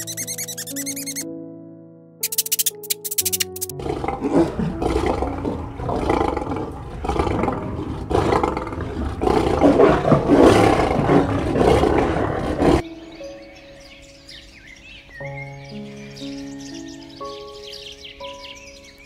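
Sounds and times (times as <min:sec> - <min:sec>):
lion roaring: 0:03.7 - 0:12.8.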